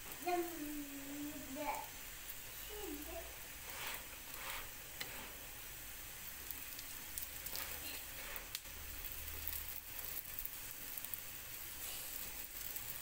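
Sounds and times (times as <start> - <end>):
flatbread sizzling in frying pan: 0.0 - 13.0
spatula scraping pan: 3.6 - 5.5, 7.5 - 8.6.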